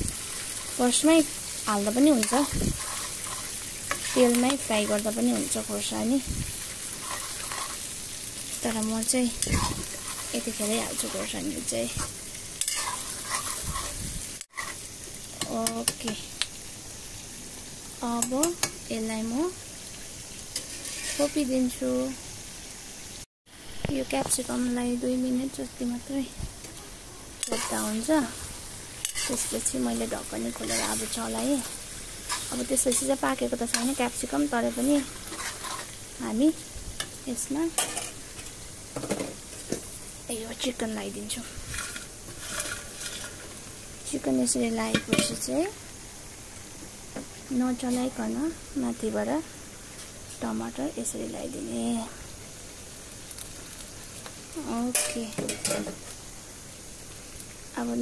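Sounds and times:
vegetables sizzling in hot oil: 0:00.0 - 0:58.0
ladle scraping a pan: 0:02.2 - 0:05.0, 0:06.6 - 0:07.9, 0:09.4 - 0:14.8, 0:20.6 - 0:21.4, 0:27.4 - 0:28.0, 0:29.0 - 0:29.6, 0:30.6 - 0:33.1, 0:34.8 - 0:36.0, 0:41.4 - 0:43.6.

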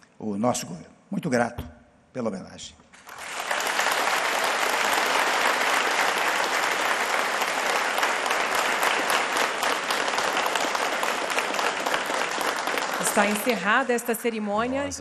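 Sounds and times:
audience applauding: 0:03.0 - 0:14.5.

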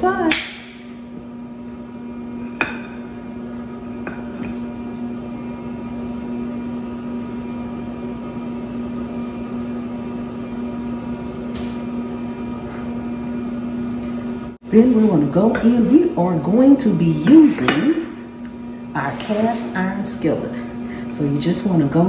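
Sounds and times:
low electric hum: 0:00.0 - 0:22.0.

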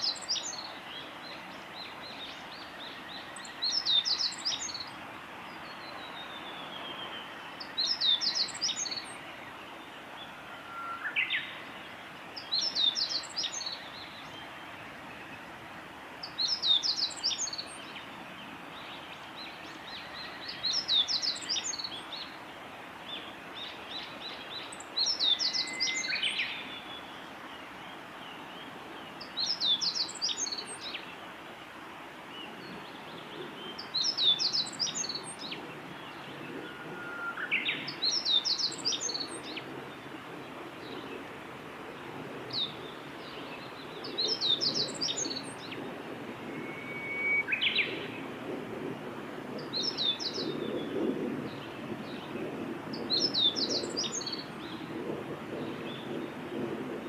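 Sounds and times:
bird singing high notes: 0:46.5 - 0:47.9.

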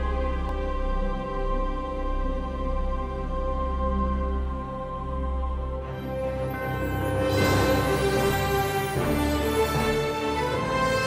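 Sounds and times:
slow sustained chords music: 0:00.0 - 0:11.0.

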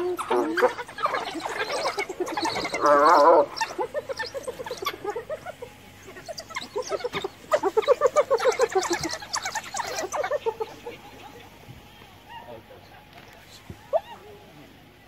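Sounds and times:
hyena giggling: 0:00.0 - 0:11.6
wild dogs twittering: 0:00.0 - 0:13.0, 0:13.7 - 0:14.5.

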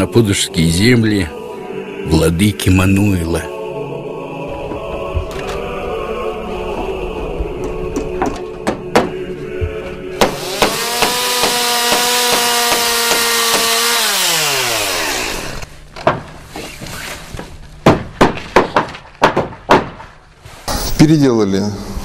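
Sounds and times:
hammer blows on boards: 0:10.2 - 0:13.7
chainsaw running: 0:10.3 - 0:15.6.

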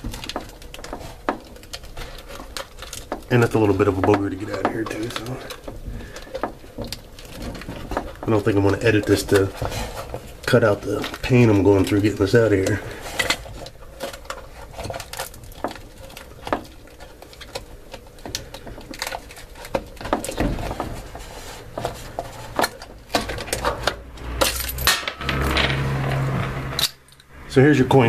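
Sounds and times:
coins clinking and rattling: 0:24.3 - 0:27.3.

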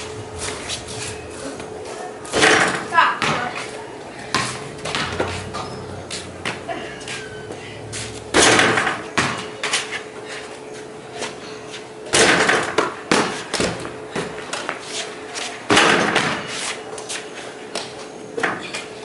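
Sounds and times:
basketball hitting backboard and rim: 0:02.3 - 0:03.5, 0:04.3 - 0:05.3, 0:08.3 - 0:09.5, 0:12.1 - 0:14.4, 0:15.7 - 0:16.5
ball bouncing on concrete: 0:02.3 - 0:03.7, 0:04.3 - 0:05.6, 0:08.3 - 0:09.8, 0:15.7 - 0:16.6.

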